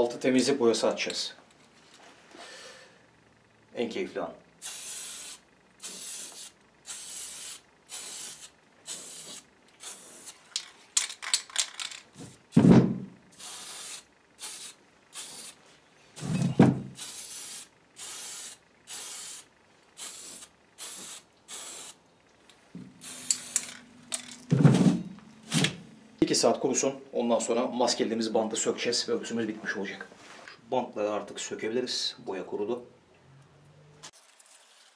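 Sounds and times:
spray paint can hissing: 0:04.6 - 0:10.4, 0:13.3 - 0:15.6, 0:16.9 - 0:22.0, 0:23.0 - 0:23.8
dull thuds: 0:12.2 - 0:13.1, 0:24.5 - 0:25.8.

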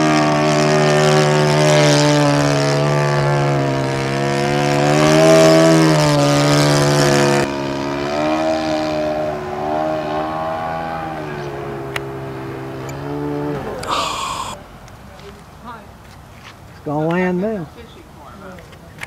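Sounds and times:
model airplane engine running: 0:00.0 - 0:07.7.

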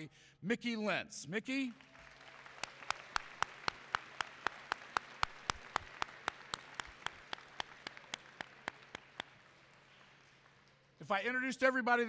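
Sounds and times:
crowd applauding: 0:01.7 - 0:11.0
close sharp claps: 0:01.7 - 0:11.1.

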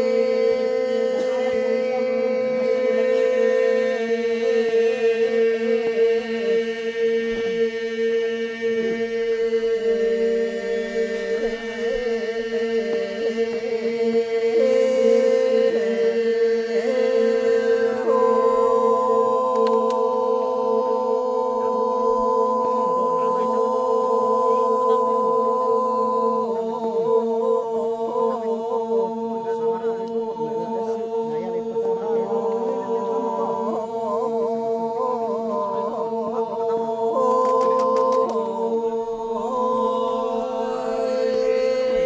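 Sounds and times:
group of voices chanting: 0:00.0 - 0:42.0.

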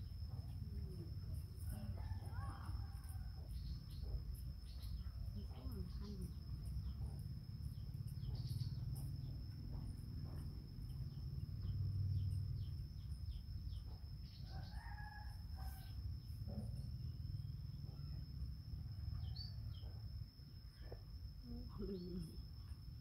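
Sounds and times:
rooster crowing: 0:01.7 - 0:03.5, 0:14.4 - 0:15.9.

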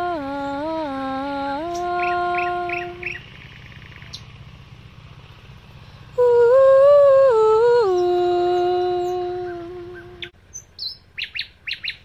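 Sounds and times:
woman humming wordless note: 0:00.0 - 0:03.1, 0:06.2 - 0:10.3
nightingale trilling: 0:01.7 - 0:04.4, 0:10.0 - 0:12.0.

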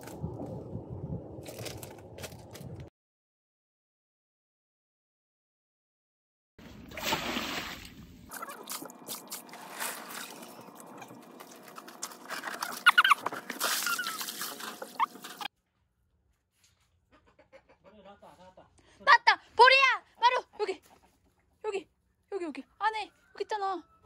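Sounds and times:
dog digging in gravel: 0:08.4 - 0:15.5
short high squeaks: 0:12.4 - 0:15.5.

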